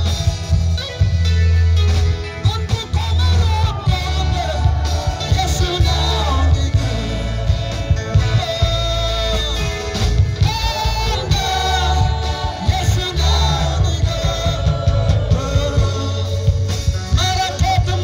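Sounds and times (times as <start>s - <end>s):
gospel music with singer: 0.0s - 18.0s
pulsing bass line: 0.0s - 18.0s.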